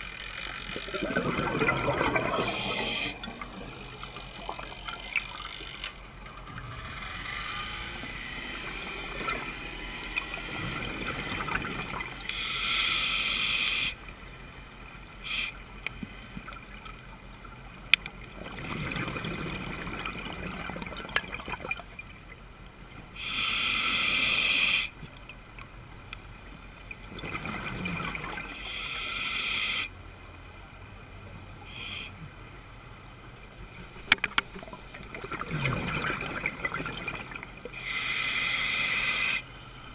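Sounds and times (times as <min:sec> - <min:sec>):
bubbling bursts of exhaled air: 0:00.0 - 0:05.7, 0:06.4 - 0:12.8, 0:27.1 - 0:28.7, 0:33.8 - 0:39.4
steady underwater hiss: 0:00.0 - 0:18.7, 0:19.3 - 0:39.9.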